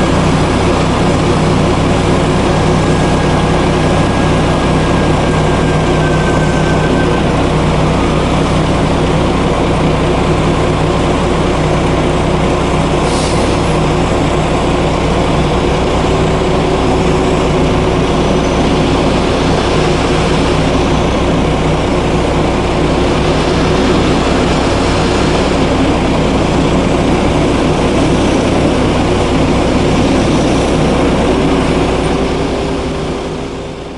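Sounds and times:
diesel truck engine running: 0:00.0 - 0:33.9
brief air hiss: 0:13.1 - 0:13.7.

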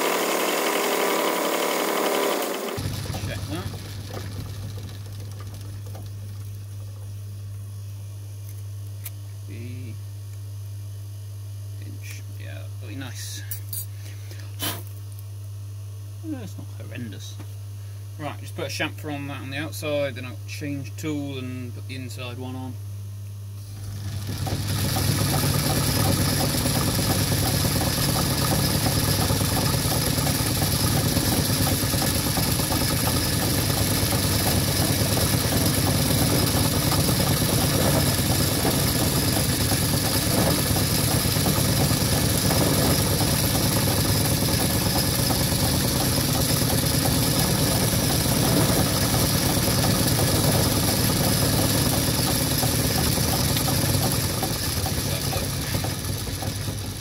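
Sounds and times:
metal lathe humming and whining: 0:00.0 - 0:03.2.

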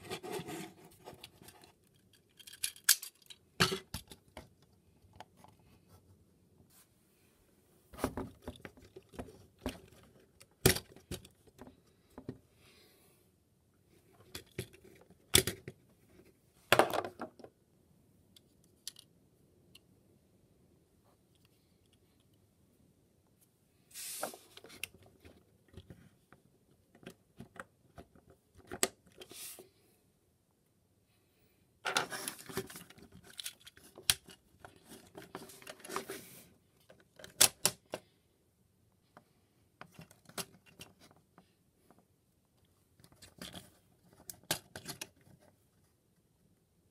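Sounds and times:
plastic toy parts clicking: 0:01.9 - 0:04.2, 0:18.8 - 0:19.1.

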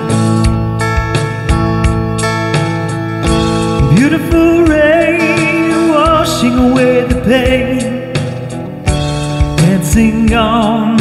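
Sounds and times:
guitar: 0:00.0 - 0:11.0
man singing: 0:03.8 - 0:08.6, 0:09.4 - 0:11.0.

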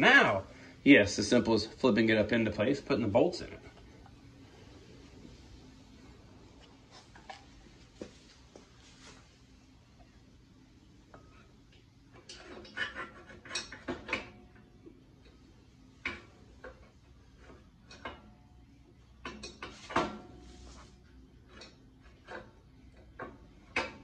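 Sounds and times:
metal clicks and clanks: 0:12.2 - 0:15.4.

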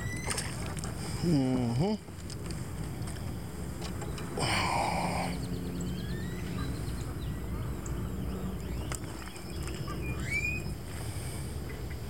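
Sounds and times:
low wind rumble: 0:00.0 - 0:12.0
bird chirping trill: 0:04.0 - 0:10.8
rising whistled bird note: 0:05.9 - 0:06.7, 0:10.0 - 0:10.8.

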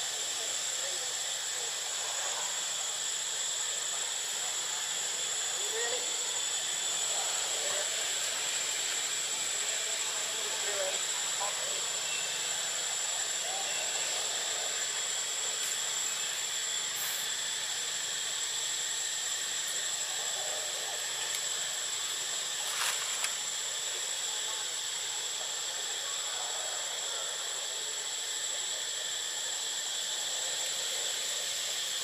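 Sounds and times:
insects droning: 0:00.0 - 0:32.0.

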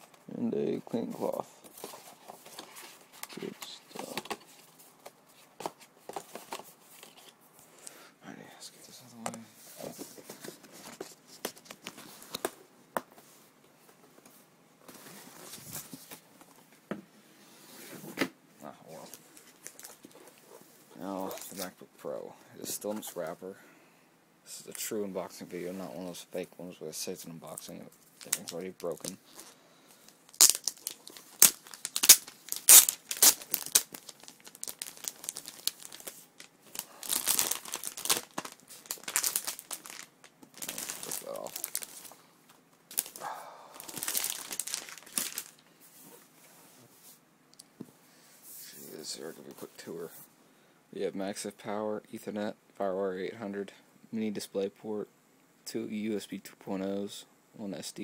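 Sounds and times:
plastic wrap crinkling and ripping: 0:27.6 - 0:29.6, 0:30.3 - 0:42.2, 0:42.9 - 0:45.6
cardboard rustling: 0:30.4 - 0:42.1.

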